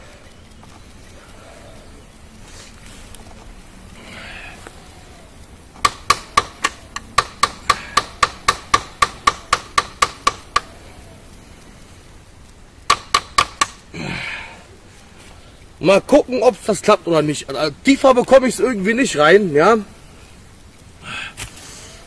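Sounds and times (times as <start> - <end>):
metal hammering on knife: 5.8 - 10.7, 12.9 - 13.8.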